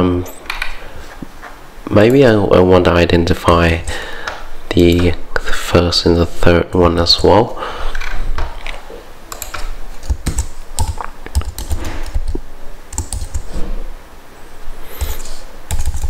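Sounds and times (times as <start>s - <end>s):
typing on computer keyboard: 8.0s - 13.5s, 15.0s - 16.0s.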